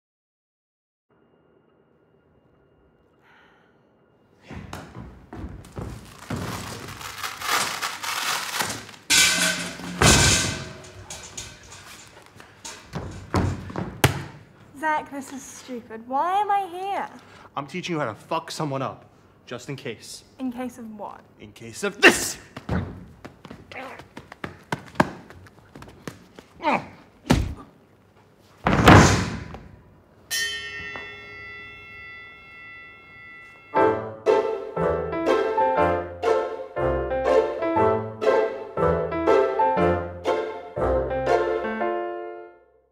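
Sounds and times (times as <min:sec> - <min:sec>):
body crashing into ring mat: 0:12.9 - 0:14.4, 0:28.6 - 0:29.8
boxing ring bell ringing: 0:30.3 - 0:33.8
music: 0:33.7 - 0:42.9.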